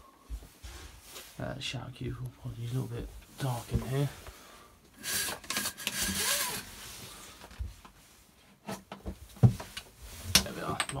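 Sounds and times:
window blind sliding: 0:05.0 - 0:07.1.

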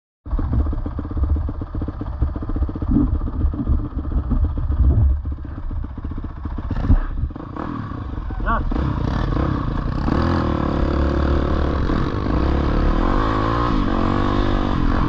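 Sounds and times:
small engine idling: 0:00.3 - 0:11.2.

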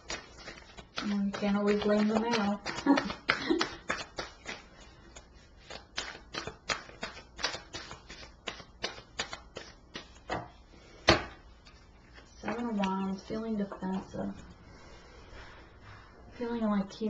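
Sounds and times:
cards being shuffled: 0:00.0 - 0:10.4.

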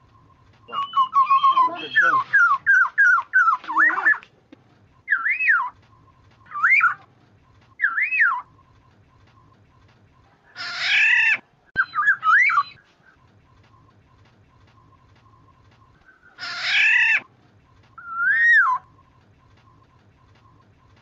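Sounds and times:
oriole whistling: 0:00.0 - 0:04.2, 0:05.0 - 0:07.1, 0:07.8 - 0:08.6, 0:10.9 - 0:12.9, 0:18.0 - 0:20.6
harsh nasal bird call: 0:00.7 - 0:04.2.

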